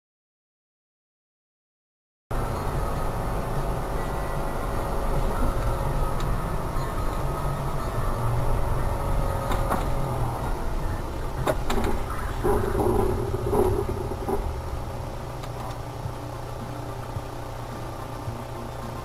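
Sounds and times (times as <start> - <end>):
car engine and tyre rumble: 2.3 - 19.0
brief wavering tone: 2.4 - 9.4.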